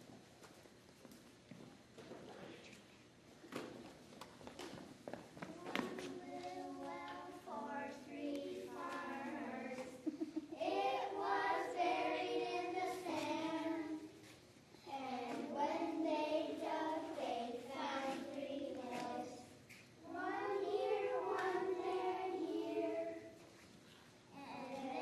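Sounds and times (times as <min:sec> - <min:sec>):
children singing: 0:06.2 - 0:10.0, 0:10.6 - 0:14.1, 0:15.0 - 0:23.4.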